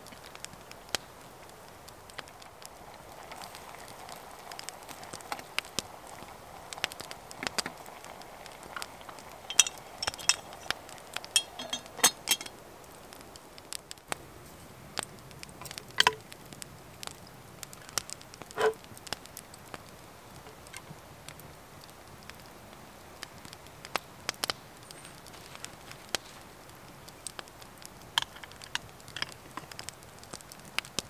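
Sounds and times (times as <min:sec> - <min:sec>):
wood fire crackling: 0:00.0 - 0:31.0
light ringing clinks: 0:09.5 - 0:12.6.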